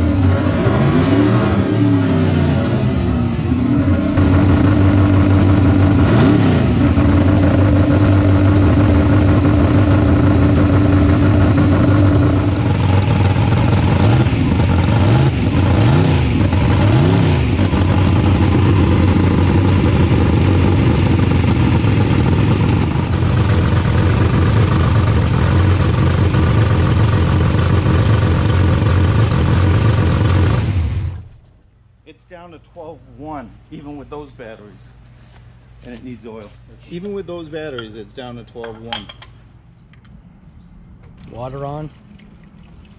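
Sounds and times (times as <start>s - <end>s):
car engine revving: 0.0s - 31.4s.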